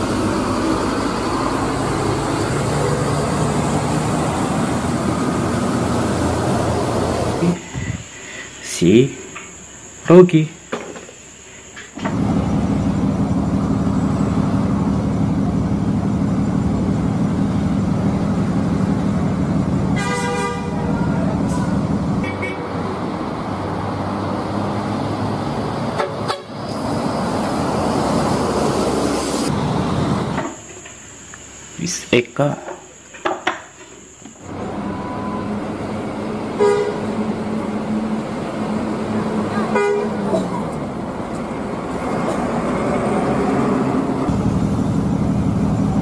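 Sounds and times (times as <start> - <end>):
bus diesel engine rumbling: 0.0 - 46.0
bus horn: 19.8 - 22.9, 25.9 - 26.7, 34.6 - 38.2, 39.3 - 40.6.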